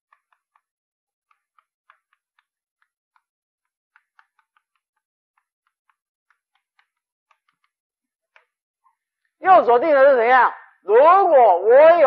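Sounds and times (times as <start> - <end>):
chalk tapping and scratching blackboard: 0.1 - 8.6.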